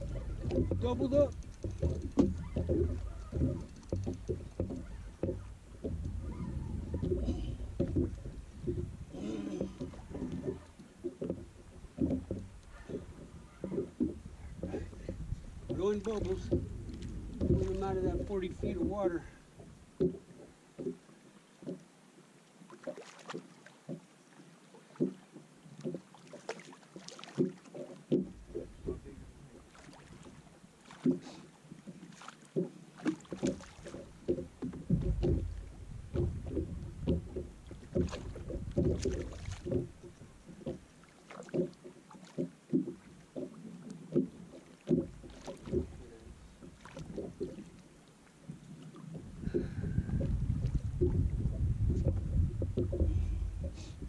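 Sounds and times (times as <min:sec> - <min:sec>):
wind rumble on microphone: 0:00.0 - 0:10.8, 0:11.4 - 0:19.9, 0:28.3 - 0:29.6, 0:34.2 - 0:40.4, 0:48.5 - 0:54.0
irregular knocks: 0:00.0 - 0:21.0, 0:27.4 - 0:29.2, 0:32.6 - 0:47.8, 0:49.1 - 0:54.0
waves slapping boat hull: 0:00.0 - 0:54.0.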